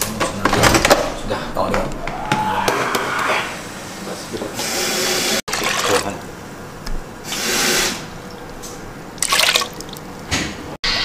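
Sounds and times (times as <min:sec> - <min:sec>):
liquid pouring: 0:05.5 - 0:06.3, 0:09.2 - 0:10.1.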